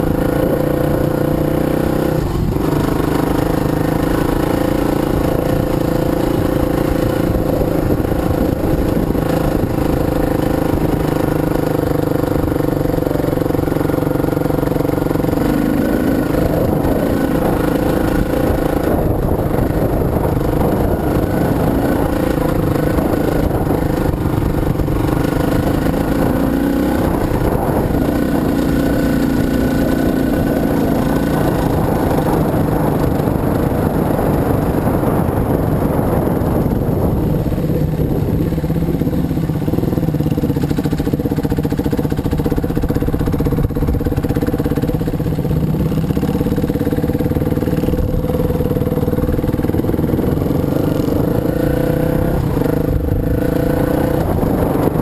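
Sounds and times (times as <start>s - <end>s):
dirt bike engine running: 0.0s - 55.0s.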